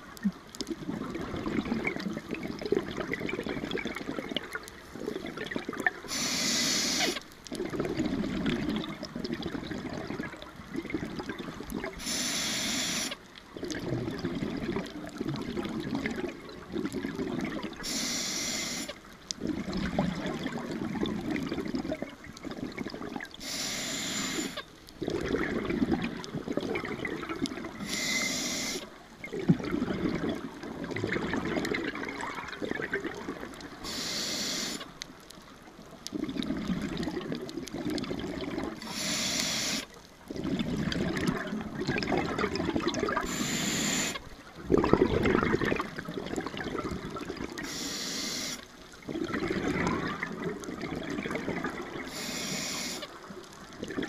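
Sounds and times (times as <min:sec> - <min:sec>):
regulator inhale hiss: 0:06.1 - 0:07.2, 0:12.0 - 0:13.2, 0:17.8 - 0:19.0, 0:23.4 - 0:24.6, 0:27.8 - 0:28.9, 0:33.8 - 0:34.9, 0:38.8 - 0:39.9, 0:43.2 - 0:44.2, 0:47.6 - 0:48.7, 0:52.0 - 0:53.1
gurgling exhaust bubbles: 0:25.0 - 0:27.8, 0:29.3 - 0:33.6, 0:40.3 - 0:43.4, 0:44.6 - 0:47.6, 0:49.0 - 0:52.0.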